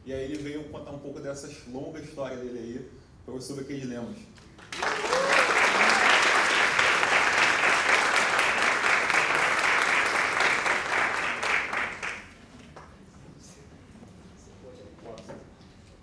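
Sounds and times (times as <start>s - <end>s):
audience applauding: 4.6s - 12.4s.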